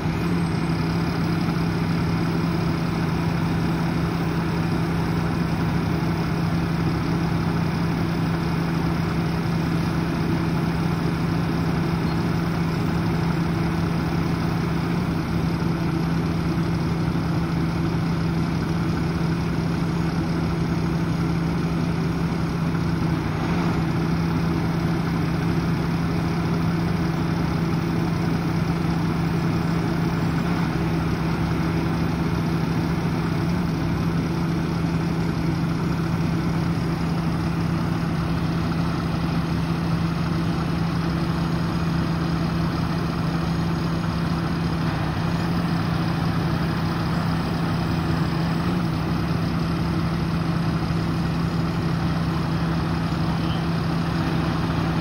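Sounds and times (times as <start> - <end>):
diesel truck engine idling: 0.0 - 55.0.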